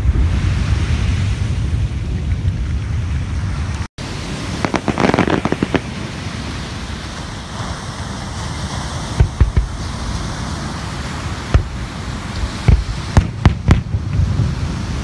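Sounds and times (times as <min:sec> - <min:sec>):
wind: 0:00.0 - 0:15.0
fireworks crackling pops: 0:02.0 - 0:06.5, 0:09.1 - 0:10.0, 0:11.4 - 0:15.0
surf: 0:03.5 - 0:15.0
fireworks booms: 0:04.5 - 0:06.4, 0:09.1 - 0:10.0, 0:11.5 - 0:15.0.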